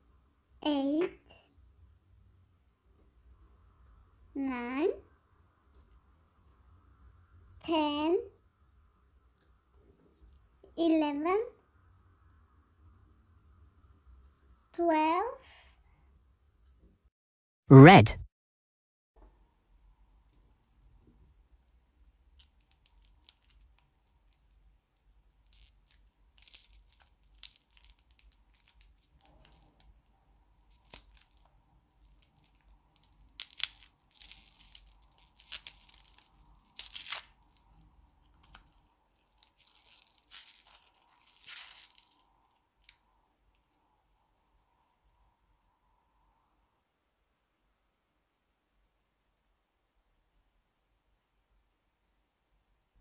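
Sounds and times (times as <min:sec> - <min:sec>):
plastic wrapper crinkling and tearing: 0:22.3 - 0:24.6, 0:25.3 - 0:43.6.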